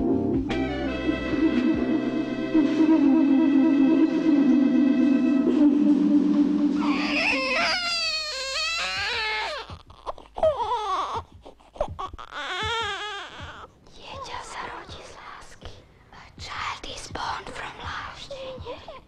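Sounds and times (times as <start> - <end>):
low held musical tone: 0.0 - 7.7
baby crying: 6.7 - 13.8.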